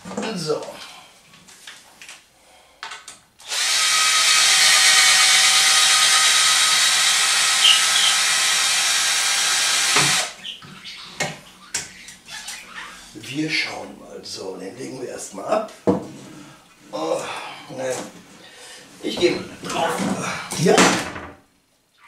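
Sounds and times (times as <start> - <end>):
power drill boring into wood: 3.4 - 10.4.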